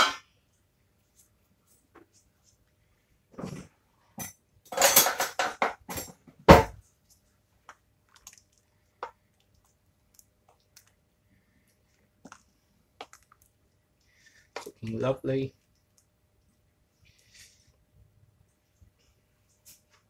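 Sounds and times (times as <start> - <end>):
soft taps stirring stew: 6.9 - 16.2.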